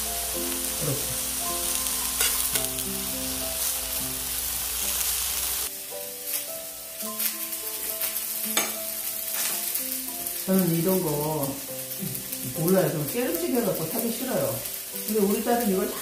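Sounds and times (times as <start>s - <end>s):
soft background music: 0.0s - 16.0s
vegetables sizzling on a griddle pan: 0.0s - 16.0s
tongs clicking against pan: 2.2s - 2.8s, 7.2s - 10.4s.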